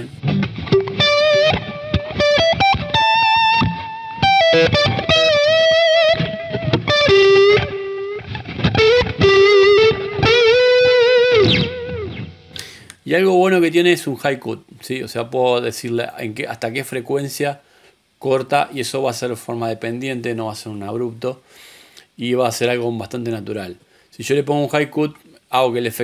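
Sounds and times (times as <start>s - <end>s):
overdriven electric guitar lead: 0.0s - 12.9s.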